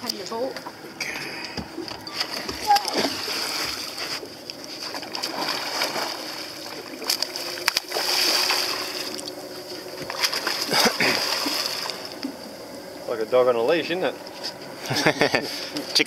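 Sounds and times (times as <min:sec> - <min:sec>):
fish thrashing and splashing: 0:01.2 - 0:12.5.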